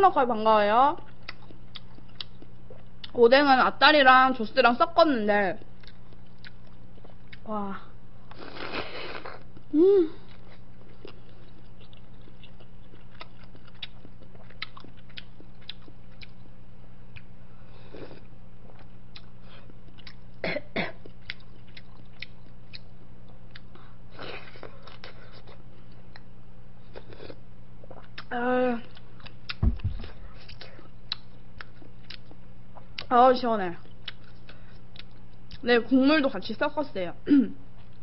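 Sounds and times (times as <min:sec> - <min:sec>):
person slurping: 0:08.3 - 0:09.4
low hum: 0:09.4 - 0:32.8.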